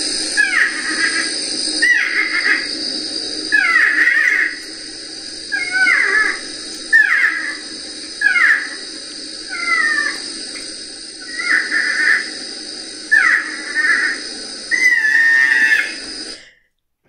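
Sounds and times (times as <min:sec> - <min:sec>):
recording hiss: 0:00.0 - 0:17.0.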